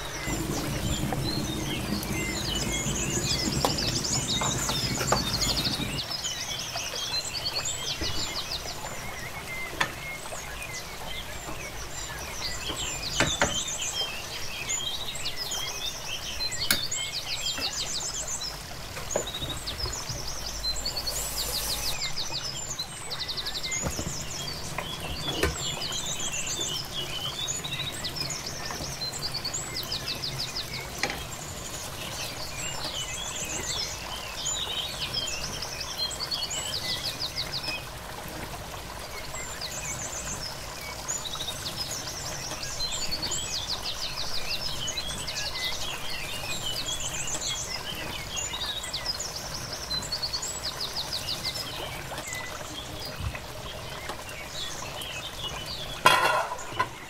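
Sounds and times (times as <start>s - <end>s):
birds singing and chirping: 0.0s - 38.0s.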